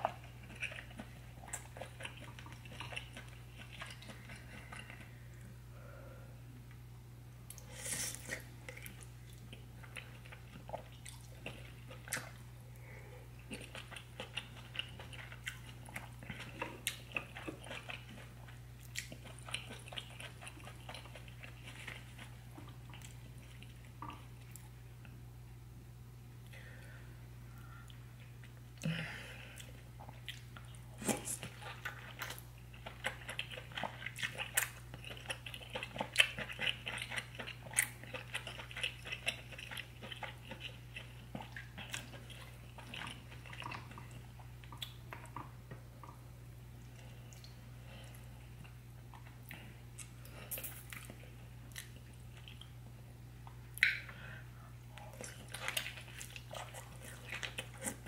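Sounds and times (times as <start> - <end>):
wet chewing: 0.0 - 5.5, 13.4 - 24.8, 29.6 - 46.2, 54.9 - 58.0
steady low hum: 0.0 - 58.0
mouth clicks and smacks: 53.8 - 54.1.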